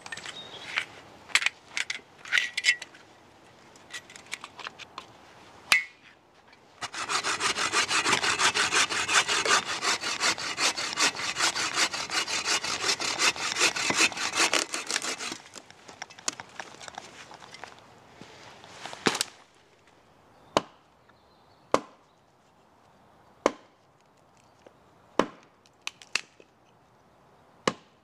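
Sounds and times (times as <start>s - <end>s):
bow saw cutting wood: 6.8s - 15.6s
footsteps in leaf litter: 18.2s - 19.6s.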